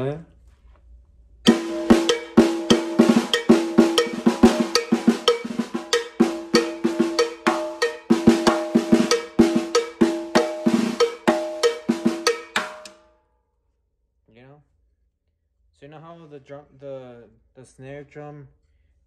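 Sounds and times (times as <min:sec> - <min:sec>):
drum strikes on snare and toms: 0:01.5 - 0:13.0
snare ringing overtone: 0:01.5 - 0:13.0.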